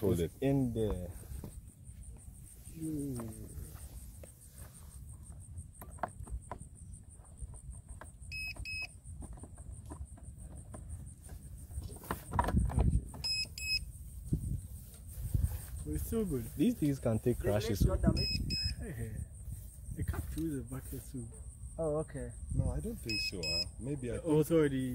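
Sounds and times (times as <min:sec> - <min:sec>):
insects trilling: 0:00.0 - 0:24.9
double electronic beep: 0:13.2 - 0:13.9, 0:18.2 - 0:18.8, 0:23.1 - 0:23.8.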